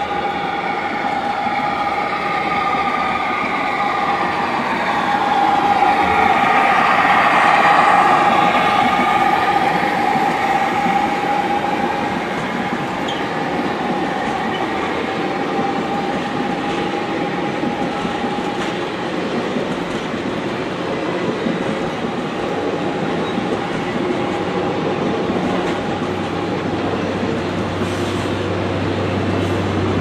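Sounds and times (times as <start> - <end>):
model locomotive whine: 0.0 - 19.1.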